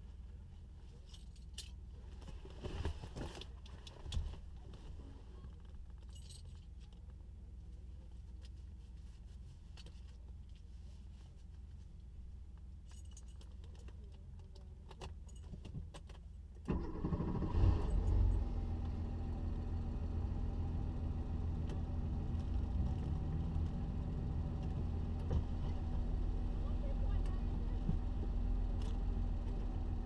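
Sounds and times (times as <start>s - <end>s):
car engine starting and idling: 16.5s - 30.0s.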